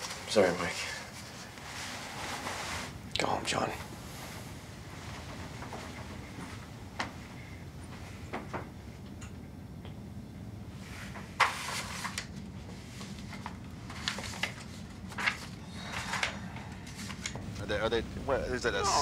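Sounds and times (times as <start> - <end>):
low room hum: 0.0 - 19.0
paper rustling: 11.4 - 17.3.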